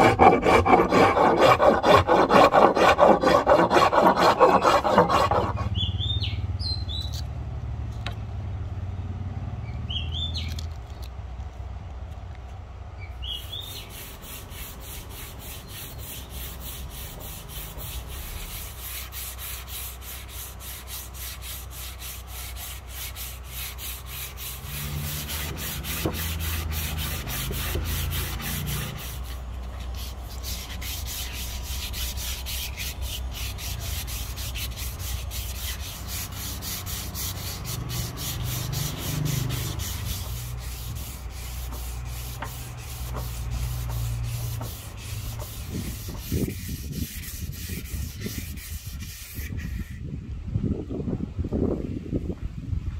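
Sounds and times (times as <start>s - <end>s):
sandpaper rubbing on wood: 0.0s - 5.8s, 13.4s - 50.0s.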